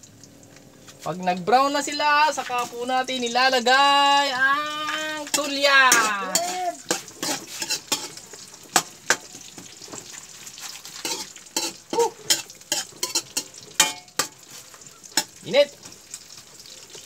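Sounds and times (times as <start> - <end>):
oil sizzling: 0.0 - 17.0
metal spatula clinking on wok: 4.8 - 8.2, 11.0 - 14.4.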